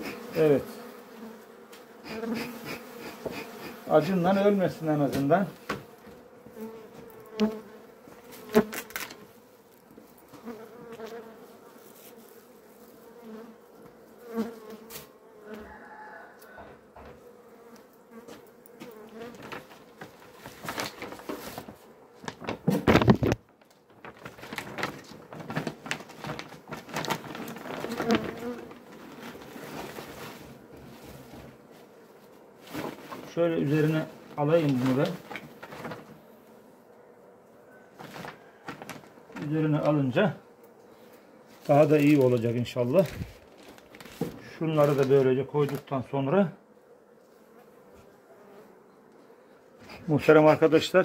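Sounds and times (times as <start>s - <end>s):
bees buzzing: 0.0s - 36.8s
plastic sheeting rustling: 19.2s - 31.5s, 32.6s - 36.2s, 38.0s - 39.2s, 41.6s - 45.8s
handling noises and knocks: 38.0s - 39.5s.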